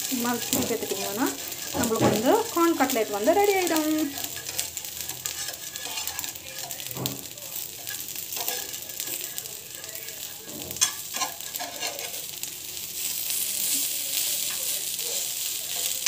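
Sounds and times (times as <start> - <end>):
food sizzling in oil: 0.0 - 16.0.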